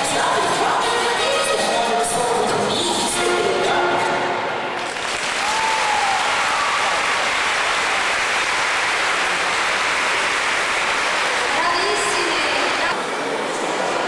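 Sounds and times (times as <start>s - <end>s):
music: 0.0s - 4.8s
audience applauding: 4.7s - 12.9s.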